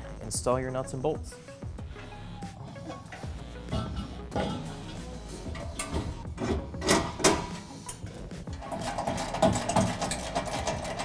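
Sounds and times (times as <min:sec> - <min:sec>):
metal knocks and clanks: 0:02.8 - 0:11.0
hand ratchet clicking: 0:05.5 - 0:11.0.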